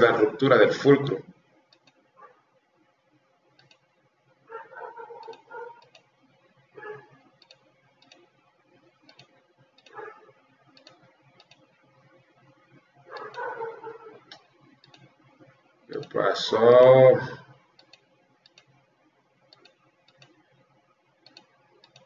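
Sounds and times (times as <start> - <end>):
steady low hum: 0.0 - 22.0
computer mouse clicks: 1.7 - 2.0, 3.5 - 3.9, 5.2 - 6.1, 7.4 - 8.3, 9.0 - 10.0, 10.7 - 11.7, 13.1 - 15.1, 17.8 - 18.8, 19.5 - 20.5, 21.2 - 22.0.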